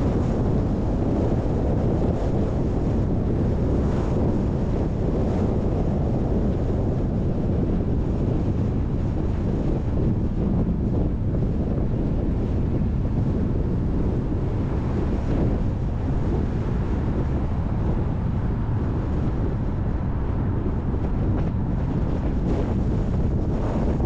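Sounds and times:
wind buffeting microphone: 0.0s - 24.0s
car rumbling on road: 9.8s - 24.0s.

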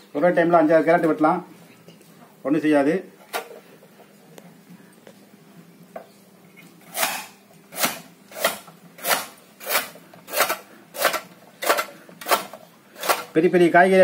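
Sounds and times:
blade chopping carrots on board: 7.0s - 13.3s.

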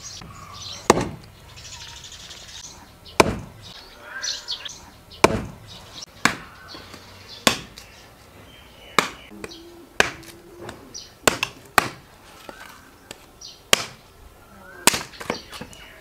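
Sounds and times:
birds chirping: 0.0s - 16.0s
axe splitting log: 0.9s - 1.3s, 3.2s - 3.6s, 5.2s - 5.6s, 6.2s - 7.8s, 9.0s - 14.0s, 14.8s - 15.7s
machete hacking branch: 0.9s - 1.3s, 3.2s - 3.6s, 5.2s - 5.6s, 6.2s - 8.0s, 9.0s - 14.0s, 14.8s - 15.7s.

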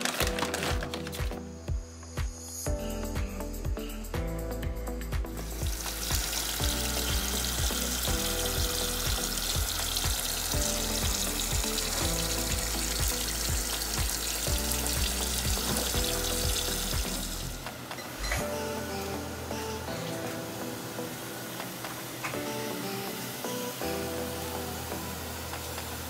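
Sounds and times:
background music with steady beat: 0.0s - 26.0s
faucet running into a pot: 5.5s - 17.6s.

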